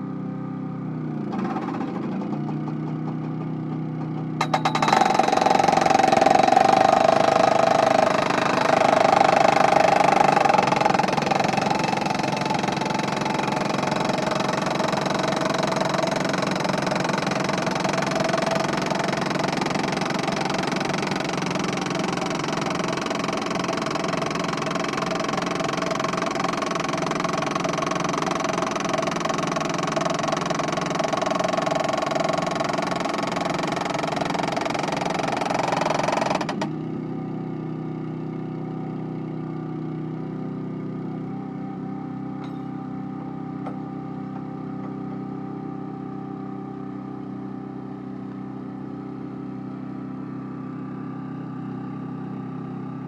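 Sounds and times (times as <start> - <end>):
engine idling: 0.8 - 35.8
hydraulic soil corer working: 1.2 - 52.3.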